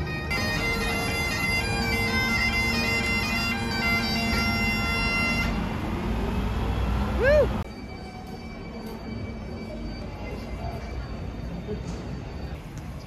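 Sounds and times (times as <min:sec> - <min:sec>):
bagpipe melody with drones: 0:00.0 - 0:05.7.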